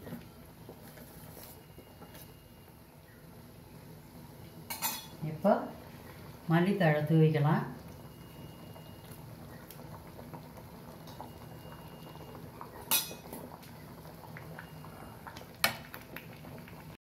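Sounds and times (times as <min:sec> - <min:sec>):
pan bubbling: 0:00.0 - 0:17.0
metal spoon clinking on pan: 0:04.7 - 0:05.1, 0:12.9 - 0:13.2.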